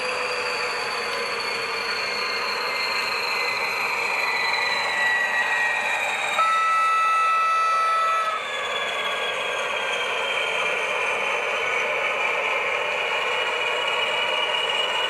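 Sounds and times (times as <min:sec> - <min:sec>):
whine dropping in pitch: 0:00.0 - 0:10.4
model locomotive engine hum: 0:00.0 - 0:15.0
locomotive horn blast: 0:06.4 - 0:08.4.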